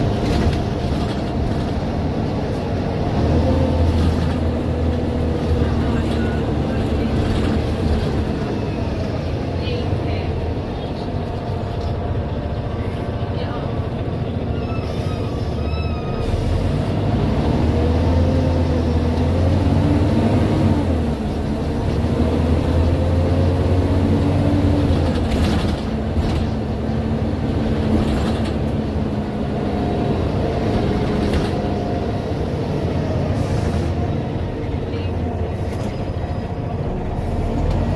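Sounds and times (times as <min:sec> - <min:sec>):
bus engine drone: 0:00.0 - 0:37.9.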